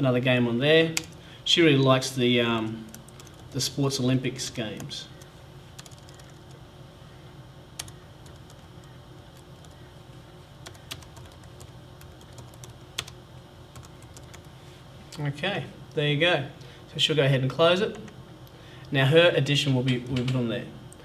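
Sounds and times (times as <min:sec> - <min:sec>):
low steady hum: 0:00.0 - 0:21.0
keyboard typing: 0:02.9 - 0:03.6, 0:04.8 - 0:06.6, 0:07.8 - 0:09.9, 0:10.6 - 0:14.5.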